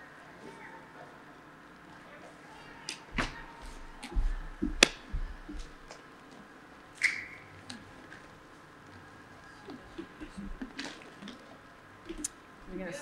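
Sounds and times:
dull thuds: 0:03.1 - 0:05.9.

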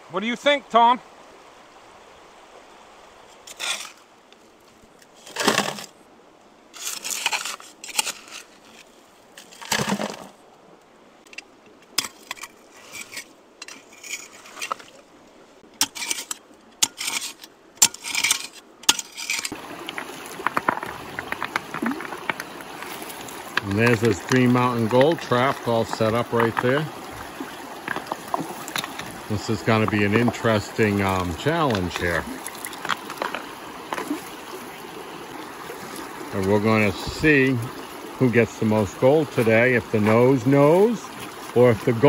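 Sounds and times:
trowel scraping in gravel: 0:03.4 - 0:04.1, 0:06.7 - 0:10.3, 0:12.0 - 0:14.9, 0:15.8 - 0:34.3
stones clinking and grating: 0:15.8 - 0:34.4.

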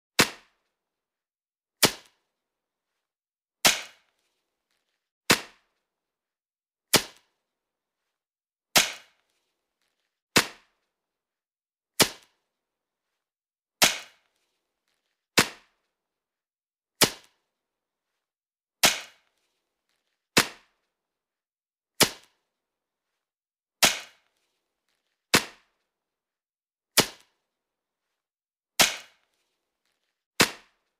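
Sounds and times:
sharp cracks: 0:08.8 - 0:09.3.

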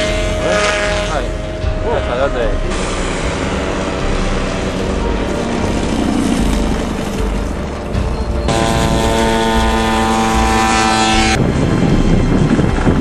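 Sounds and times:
drone engine and propeller: 0:00.0 - 0:13.0
steady engine tone: 0:00.0 - 0:13.0
wind noise on microphone: 0:02.8 - 0:13.0.

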